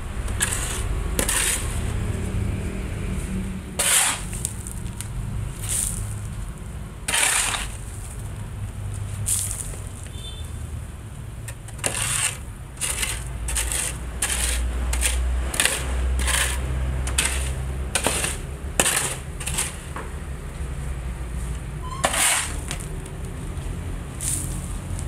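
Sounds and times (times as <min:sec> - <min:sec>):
steady low rumble: 0:00.0 - 0:07.1.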